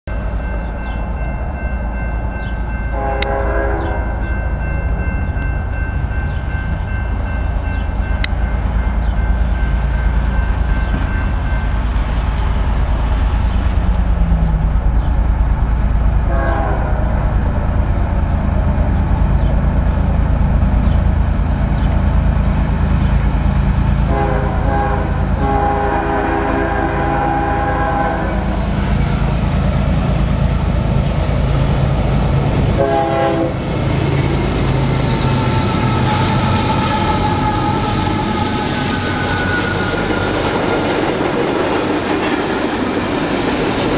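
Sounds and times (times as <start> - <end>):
low train rumble: 0.1 - 43.9
train horn blasts: 2.7 - 4.7, 16.2 - 17.6, 24.0 - 28.7, 32.6 - 33.7, 35.1 - 40.4.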